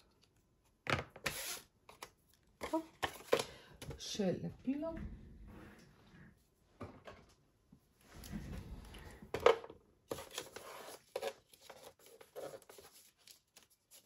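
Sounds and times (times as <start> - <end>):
paper rustling: 10.1 - 14.0.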